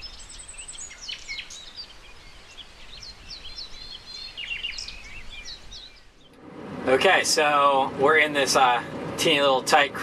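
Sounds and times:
birds chirping and whistling: 0:00.0 - 0:06.4.

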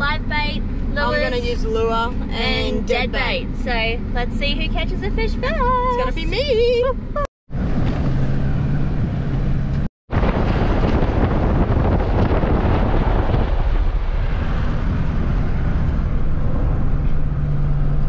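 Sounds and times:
vehicle engine and tyre rumble: 0:00.0 - 0:18.0
wind buffeting microphone: 0:06.8 - 0:18.0.

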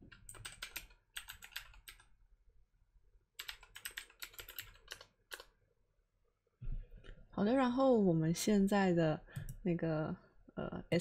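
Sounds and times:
computer keyboard typing: 0:00.0 - 0:02.1, 0:03.4 - 0:05.5.

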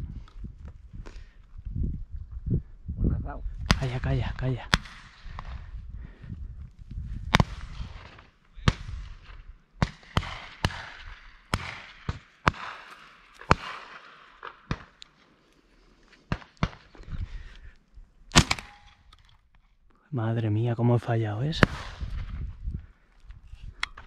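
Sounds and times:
wind rumble on microphone: 0:00.0 - 0:09.6, 0:17.0 - 0:18.2, 0:21.4 - 0:24.0
shotgun shots: 0:03.7 - 0:05.7, 0:07.3 - 0:15.0, 0:18.3 - 0:19.1, 0:21.5 - 0:22.4.

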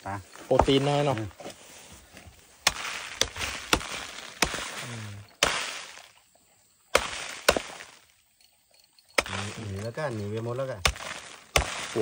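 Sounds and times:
soil crumbling: 0:00.0 - 0:06.3, 0:06.9 - 0:08.2, 0:09.1 - 0:12.0
knife chopping into earth: 0:02.6 - 0:06.1, 0:06.9 - 0:08.0, 0:09.2 - 0:09.8, 0:10.8 - 0:12.0.

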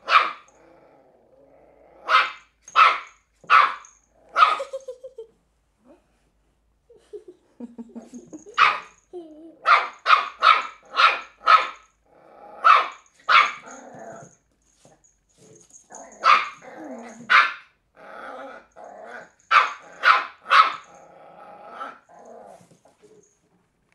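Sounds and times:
puppy barking: 0:00.0 - 0:00.5, 0:02.0 - 0:04.8, 0:08.5 - 0:09.0, 0:09.6 - 0:11.9, 0:12.6 - 0:13.8, 0:16.0 - 0:17.7, 0:19.5 - 0:20.9
puppy growling: 0:00.5 - 0:02.1, 0:12.0 - 0:12.8, 0:13.6 - 0:14.4, 0:15.9 - 0:17.3, 0:17.9 - 0:20.0, 0:20.8 - 0:23.4.

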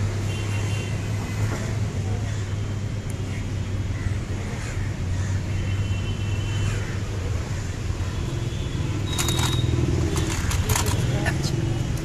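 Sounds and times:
road traffic rumble: 0:00.0 - 0:12.0
sharp clicks: 0:09.1 - 0:11.1.

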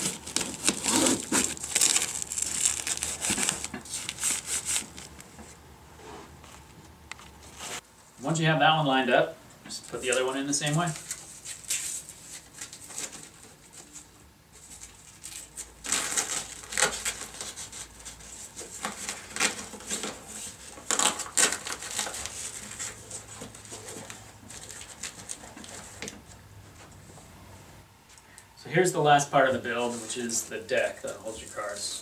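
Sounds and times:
velcro strips rasping: 0:00.0 - 0:05.0, 0:20.8 - 0:23.0
fabric rustling and scraping: 0:00.0 - 0:07.9.

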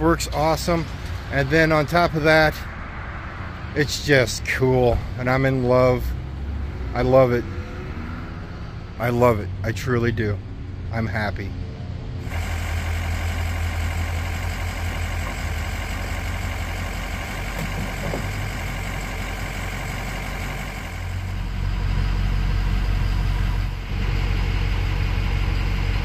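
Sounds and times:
vehicle engine idling: 0:12.1 - 0:26.0.

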